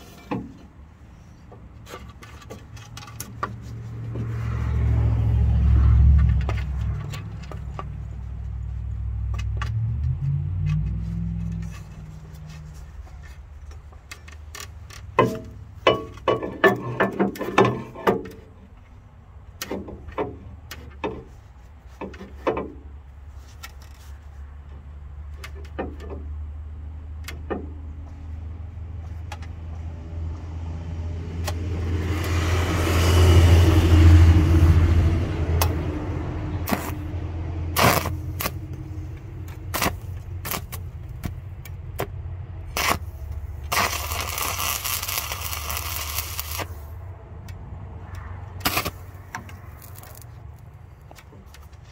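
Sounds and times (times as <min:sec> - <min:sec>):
sharp metallic clicks and knocks: 0:00.0 - 0:04.4, 0:06.0 - 0:08.6, 0:09.2 - 0:12.1, 0:13.2 - 0:21.4, 0:22.0 - 0:28.3, 0:29.0 - 0:29.8, 0:35.5 - 0:46.8
cutting torch hissing: 0:36.6 - 0:37.1, 0:42.7 - 0:46.9.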